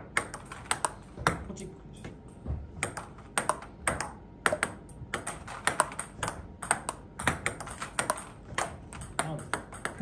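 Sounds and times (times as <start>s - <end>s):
ping pong ball clicking off bats: 0.0s - 1.6s, 2.7s - 10.0s
ball bouncing on table: 0.0s - 10.0s.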